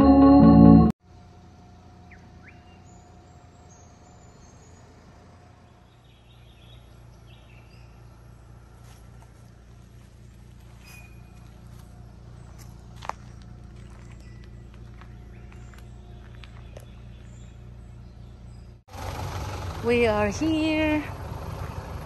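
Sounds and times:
organ-like intro music: 0.0s - 1.0s.

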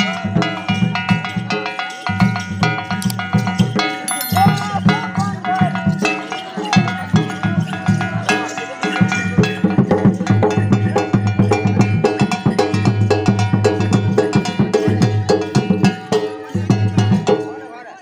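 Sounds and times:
held melody line: 4.1s - 5.0s
clanging metal bell: 4.1s - 5.9s.

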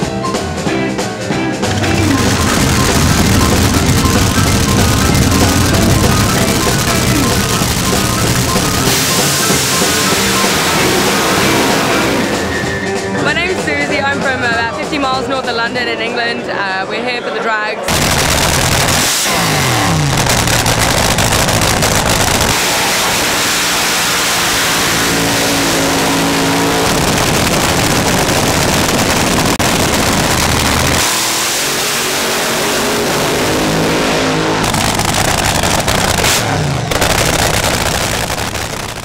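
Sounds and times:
dragster engines running rough: 1.6s - 14.6s, 17.9s - 39.0s.

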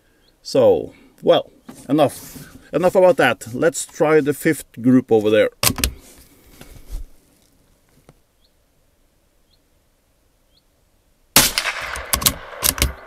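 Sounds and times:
rifle shot: 11.4s - 13.0s.

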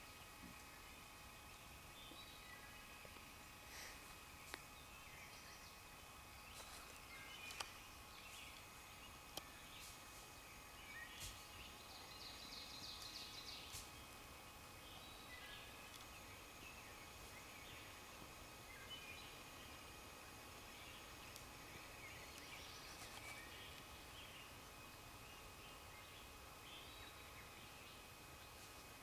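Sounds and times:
faint bird chirps: 0.0s - 14.2s.

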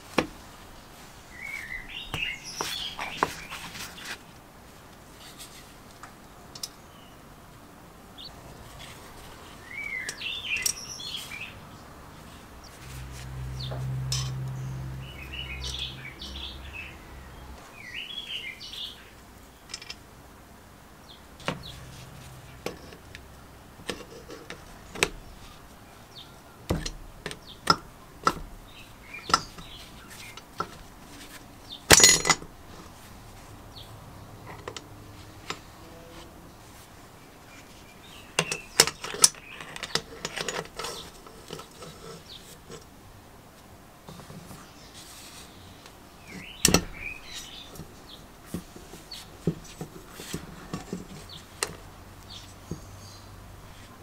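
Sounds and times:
birds chirping: 0.4s - 4.2s, 8.1s - 20.1s, 20.9s - 32.8s, 33.6s - 42.6s, 44.1s - 54.0s
tools clinking on metal: 19.7s - 20.0s, 31.9s - 32.5s, 38.4s - 41.9s
loud metal clank: 31.9s - 32.5s.

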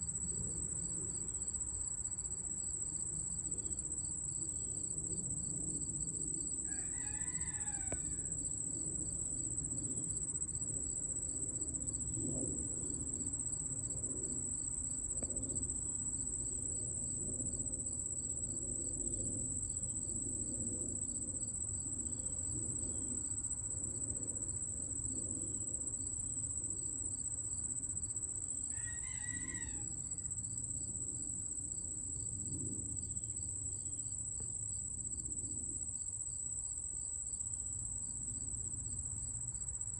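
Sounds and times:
crickets trilling: 0.0s - 39.9s
rooster crowing: 6.6s - 8.4s, 28.7s - 30.3s.

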